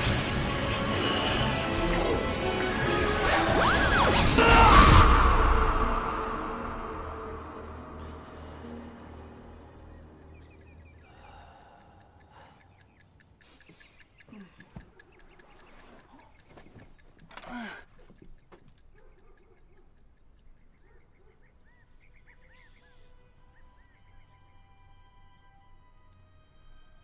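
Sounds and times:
quick faint ticking: 8.0 - 24.5.

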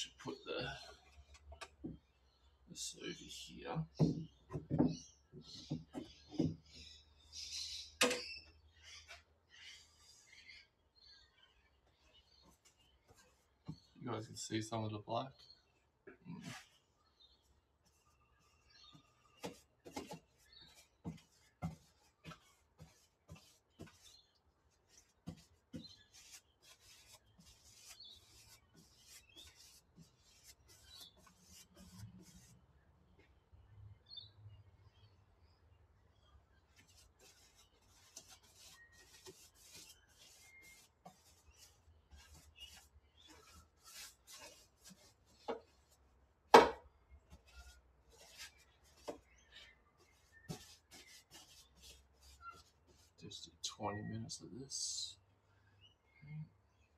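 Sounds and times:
paintbrush strokes on metal: 16.3 - 32.6, 36.7 - 46.0, 47.3 - 53.7.

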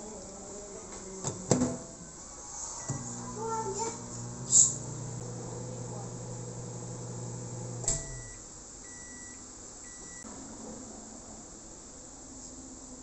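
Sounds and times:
microwave oven humming: 2.8 - 10.2
microwave beeps: 2.8 - 10.3
microwave shutting off click: 2.9 - 3.3, 4.0 - 8.4.

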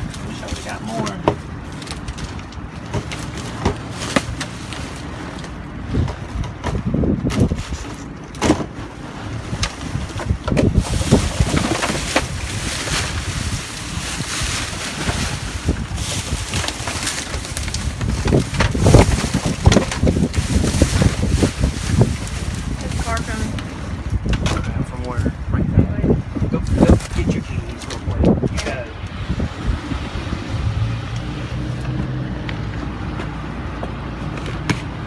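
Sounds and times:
plastic bags rustling: 0.0 - 24.3, 26.6 - 28.8
wind rumbling on microphone: 0.0 - 35.0.

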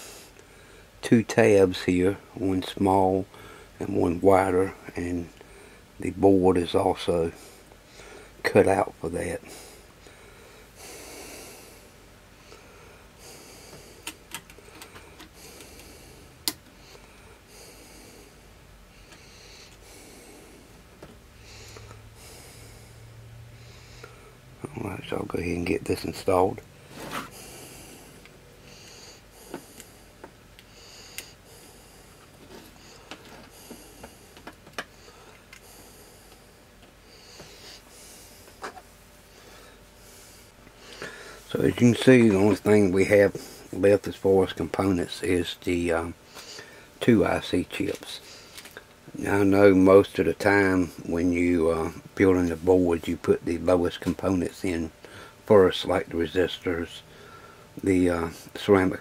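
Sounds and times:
person breathing: 0.0 - 1.0, 3.3 - 3.8, 7.3 - 8.4, 9.4 - 24.4, 26.8 - 41.5, 46.2 - 47.0, 55.0 - 55.4, 57.0 - 57.7
breathing through the nose: 39.3 - 41.5.

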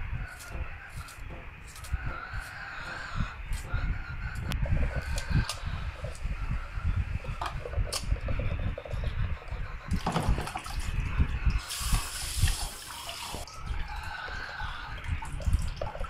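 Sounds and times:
water sloshing and splashing in pot: 10.0 - 11.0
running water: 10.0 - 16.0.

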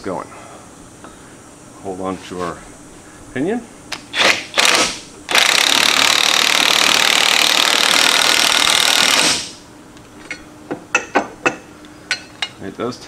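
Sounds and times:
impact wrench hammering: 4.2 - 9.6.

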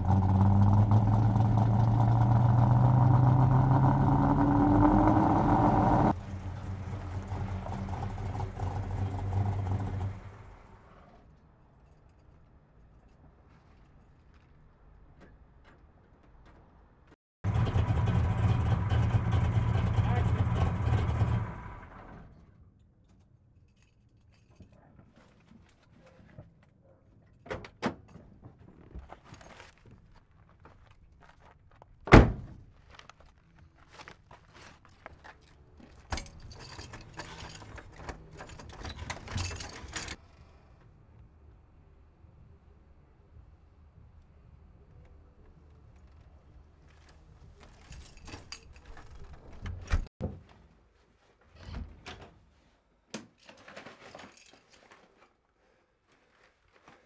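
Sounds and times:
car engine rumbling: 0.0 - 11.2, 17.4 - 22.4
car door slamming: 32.1 - 32.6
keys jangling at door lock: 35.9 - 40.2, 47.7 - 49.6.

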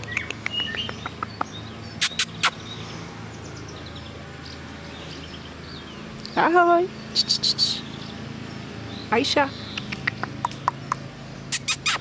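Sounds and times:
sharp clicks: 9.7 - 11.0.

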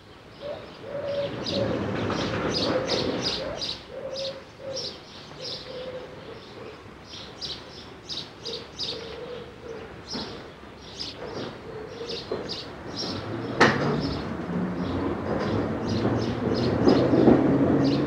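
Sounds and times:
small birds chirping: 0.1 - 18.0
pigeon cooing: 0.4 - 6.8, 8.4 - 10.5, 11.2 - 12.5.

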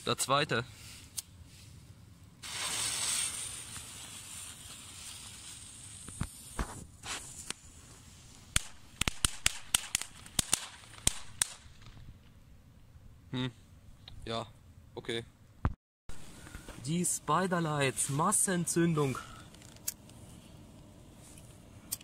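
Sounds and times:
firework pops: 2.4 - 7.7, 8.4 - 12.3
firework hissing burst: 2.4 - 11.6
firework crackling cracks: 2.4 - 12.1.

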